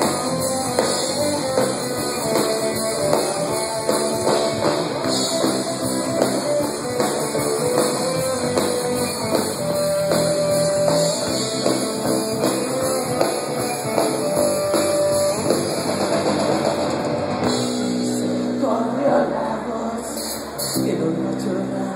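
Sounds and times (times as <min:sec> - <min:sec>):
drum kit: 0:00.0 - 0:18.7
electric guitars: 0:00.0 - 0:21.9.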